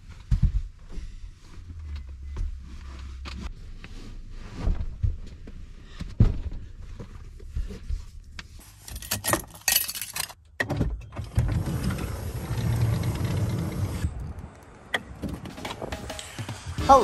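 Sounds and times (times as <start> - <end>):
sliding door motor whirring: 11.2 - 14.2.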